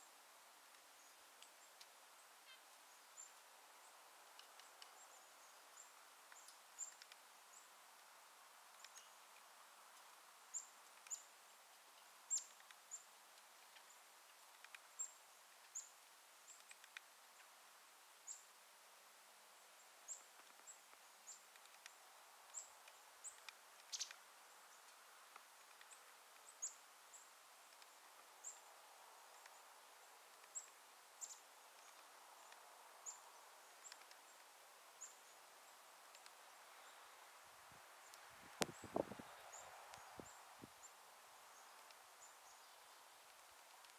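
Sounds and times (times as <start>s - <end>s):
faint hiss: 0.0s - 43.9s
woodpecker pecking: 6.3s - 7.3s, 10.8s - 15.8s, 20.2s - 24.2s, 33.8s - 34.6s.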